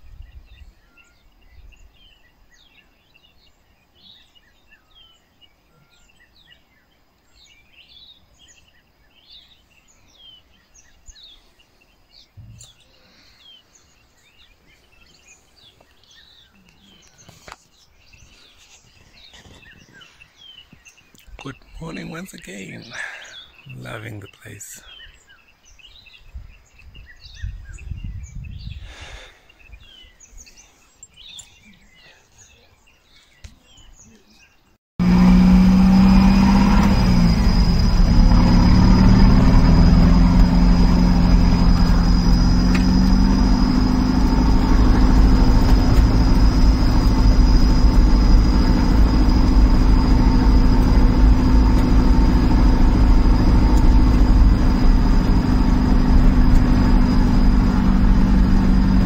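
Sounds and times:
birds chirping: 0:00.0 - 0:59.0
vehicle engine droning: 0:35.0 - 0:59.0.

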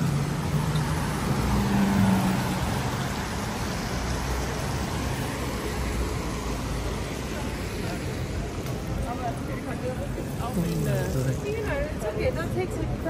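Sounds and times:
vehicle engine: 0:00.0 - 0:12.0
traffic on wet street: 0:00.0 - 0:13.0.

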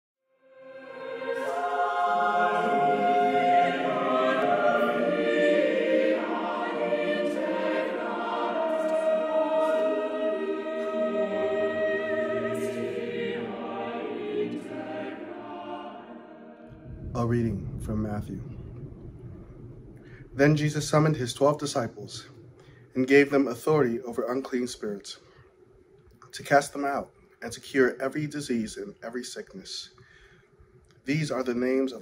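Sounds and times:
choir singing sustained chords: 0:00.4 - 0:25.4.

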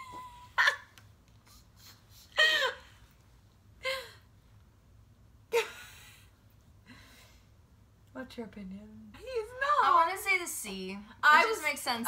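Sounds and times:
young women laughing and gasping: 0:01.5 - 0:03.1.

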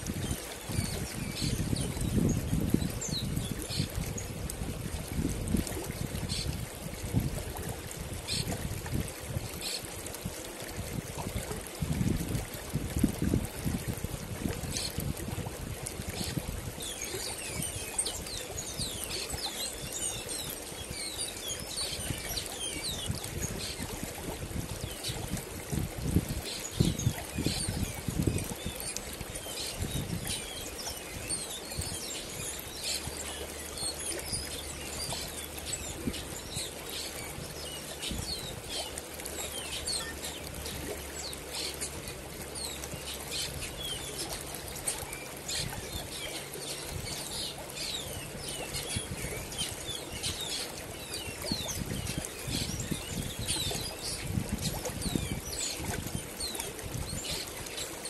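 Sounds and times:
river water running over rocks: 0:00.0 - 0:58.0
small birds chirping: 0:26.4 - 0:58.0.

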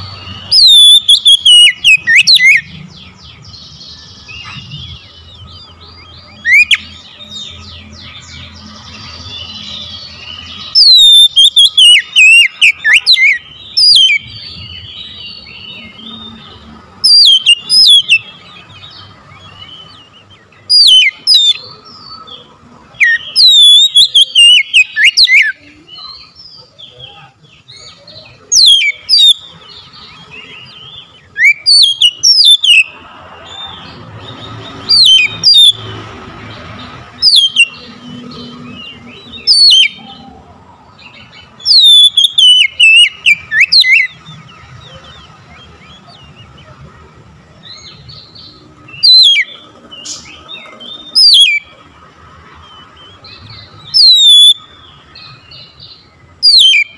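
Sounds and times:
bird singing whistled phrases: 0:00.1 - 0:02.7, 0:03.9 - 0:08.5, 0:09.2 - 0:16.3, 0:17.0 - 0:18.3, 0:19.5 - 0:21.8, 0:23.0 - 0:29.4, 0:30.3 - 0:32.9, 0:34.8 - 0:35.9, 0:37.2 - 0:40.4, 0:41.1 - 0:44.2, 0:47.7 - 0:51.7, 0:53.1 - 0:55.8, 0:56.4 - 0:56.9.

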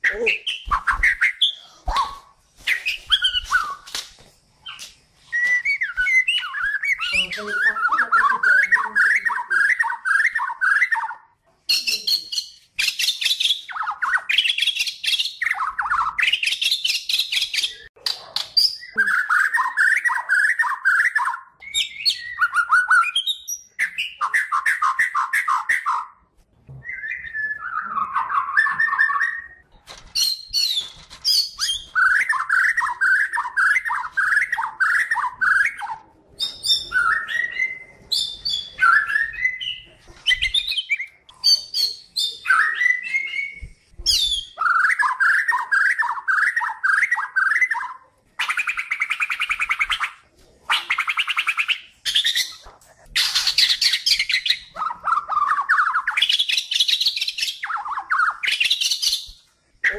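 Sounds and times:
songbird chattering and whistling: 0:04.6 - 0:26.2.

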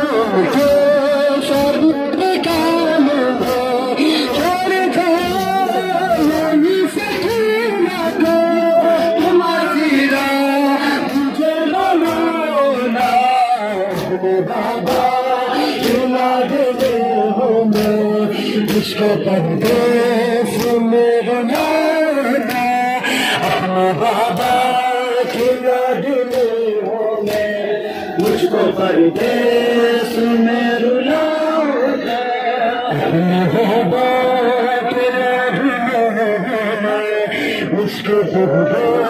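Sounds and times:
men chanting lament: 0:00.0 - 0:39.0.

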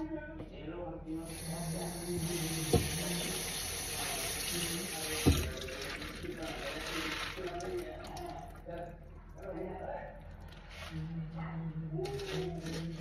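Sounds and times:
tap water running into strainer: 0:01.3 - 0:08.8.

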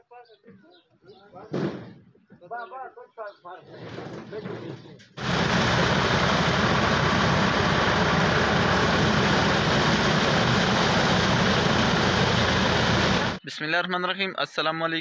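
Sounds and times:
threshing machine noise: 0:05.2 - 0:13.4
tractor engine drone: 0:05.2 - 0:13.4.

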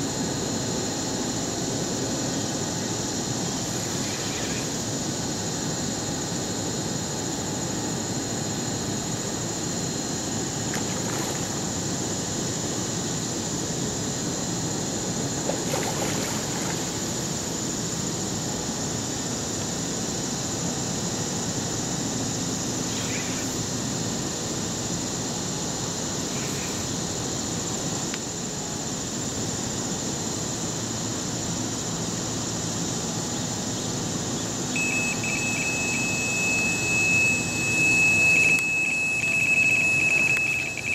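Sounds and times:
high steady whine: 0:00.0 - 0:40.9
high beep-like tone: 0:34.8 - 0:40.9.

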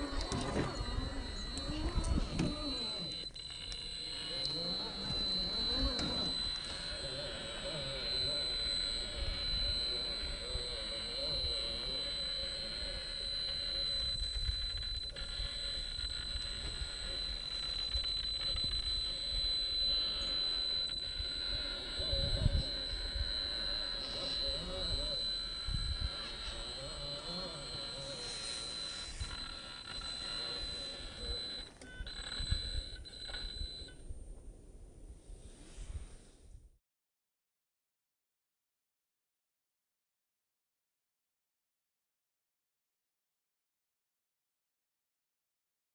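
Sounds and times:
electric motor whine: 0:00.0 - 0:34.0.

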